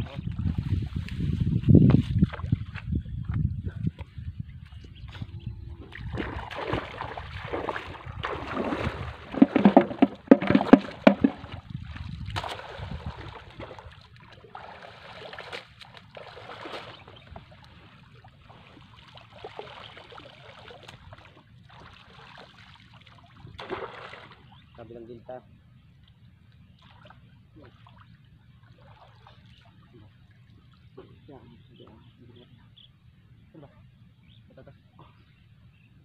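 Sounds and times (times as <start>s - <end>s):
water splashing and sloshing: 0.3s - 3.4s, 5.1s - 24.8s, 25.9s - 31.3s.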